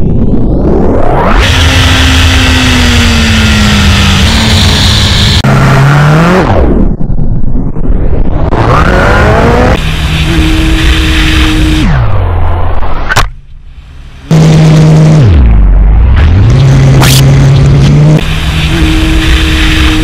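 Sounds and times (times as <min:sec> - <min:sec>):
motorcycle engine revving: 0:01.3 - 0:07.0, 0:08.4 - 0:12.3, 0:14.2 - 0:20.0.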